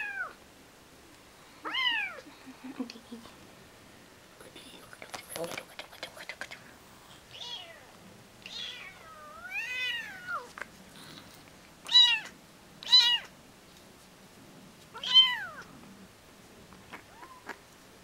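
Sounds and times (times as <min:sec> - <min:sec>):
kitten meowing: 0:01.6 - 0:02.2, 0:07.3 - 0:07.9, 0:08.5 - 0:10.5, 0:11.9 - 0:13.3, 0:15.0 - 0:15.7, 0:16.9 - 0:17.6.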